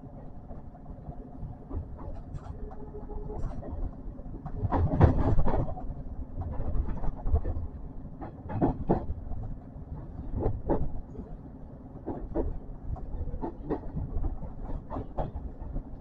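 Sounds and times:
train rumbling: 0.0s - 16.0s
train wheels clacking over rail joints: 4.4s - 7.6s, 8.2s - 9.5s, 12.0s - 16.0s.

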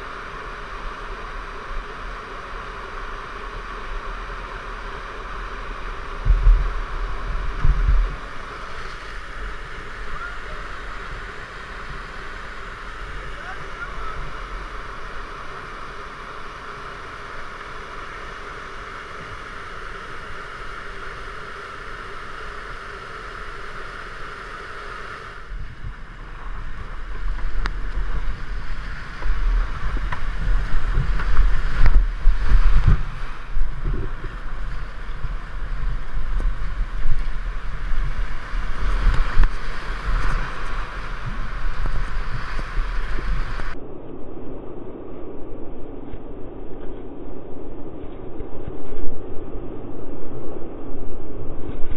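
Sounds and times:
whitewater rapid rushing: 0.0s - 43.8s.

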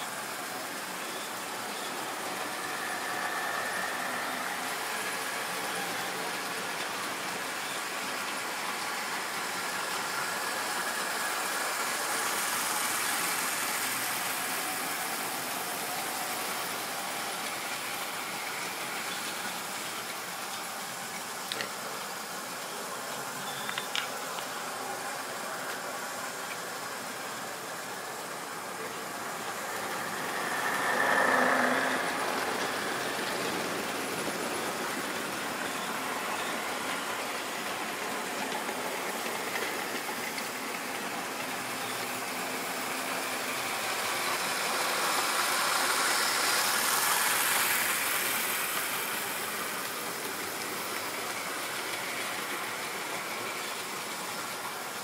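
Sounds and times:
model trains running: 0.0s - 55.0s.

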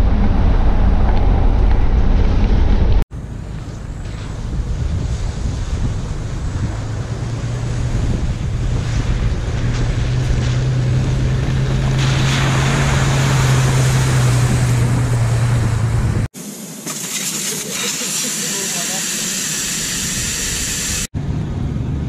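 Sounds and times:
diesel engine drone: 0.0s - 22.0s
tyres splashing through water: 3.7s - 15.9s
wind on microphone: 3.7s - 16.3s.

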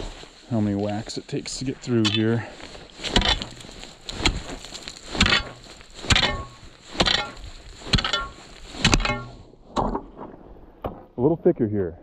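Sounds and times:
ice chisel striking ice: 3.1s - 9.3s.

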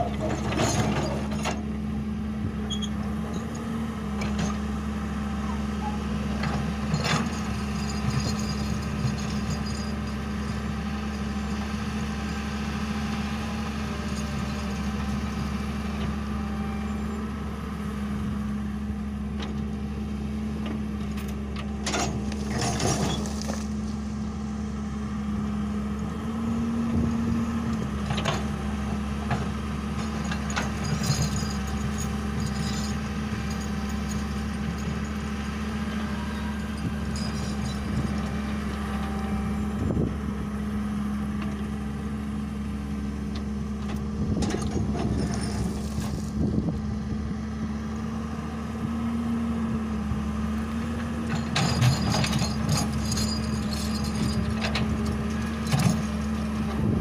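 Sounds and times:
excavator diesel engine running: 0.0s - 57.0s
bucket knocking and scraping rocks: 22.4s - 23.8s.

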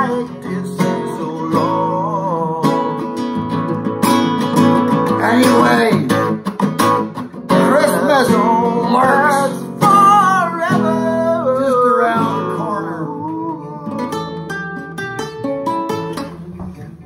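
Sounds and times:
person singing: 0.0s - 3.4s, 5.1s - 6.3s, 7.5s - 14.6s
strummed acoustic guitar: 0.0s - 17.0s.

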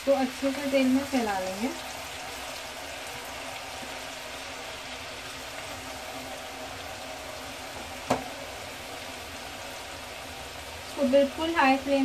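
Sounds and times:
food deep-frying in oil: 0.0s - 12.0s.

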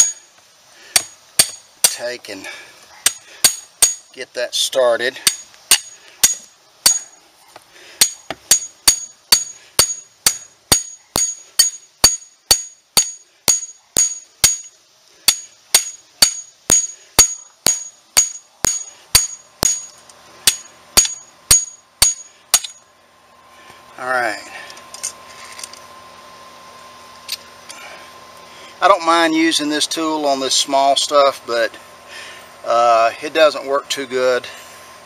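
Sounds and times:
hammer striking metal tool: 0.0s - 0.2s, 1.0s - 2.0s, 3.0s - 4.1s, 5.2s - 7.1s, 8.0s - 14.7s, 15.3s - 22.8s.

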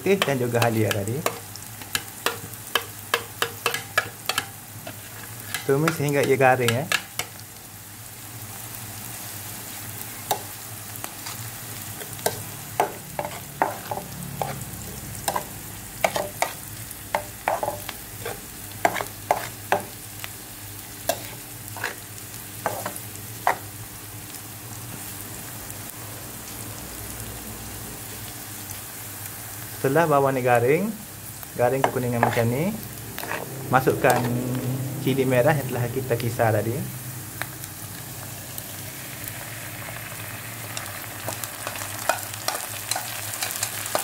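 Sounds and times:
food sizzling in hot oil: 0.0s - 44.0s
spatula knocking against pan: 12.3s - 14.6s.

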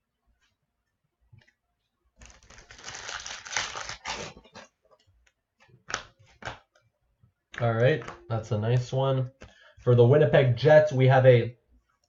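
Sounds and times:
cards crackling when handled: 2.2s - 4.4s
foil wrapper crinkling: 2.2s - 4.5s.

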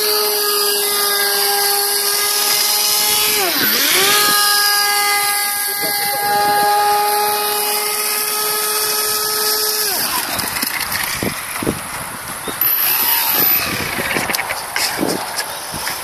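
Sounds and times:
electric motor and propeller whining: 0.0s - 16.0s
water noise: 0.0s - 16.0s.

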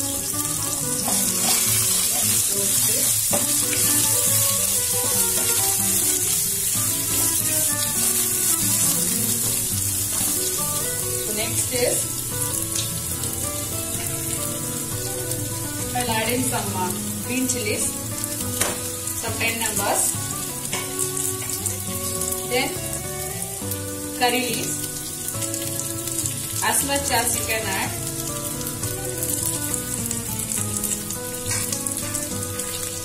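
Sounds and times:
background music: 0.0s - 33.0s
vegetables sizzling in hot oil: 0.0s - 33.0s
spatula stirring: 1.0s - 4.4s, 31.4s - 32.0s.

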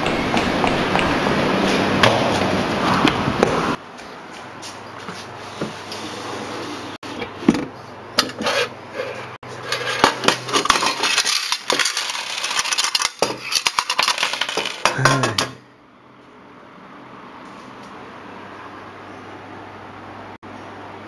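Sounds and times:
coins clattering onto table: 10.5s - 15.4s.

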